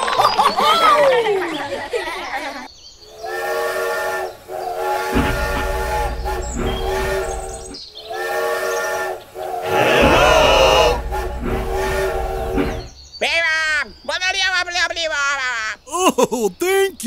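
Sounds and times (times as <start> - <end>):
low train rumble: 3.0 - 13.0
toy train whistle blasts: 3.2 - 12.8.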